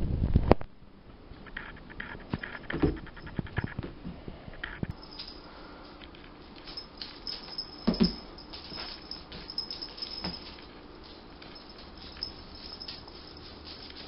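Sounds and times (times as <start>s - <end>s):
feathers rustling: 6.5s - 14.0s.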